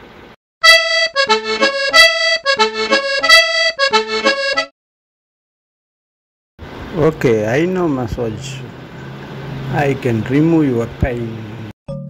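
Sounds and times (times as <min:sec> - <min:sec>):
quick instrumental melody: 0:00.6 - 0:04.7.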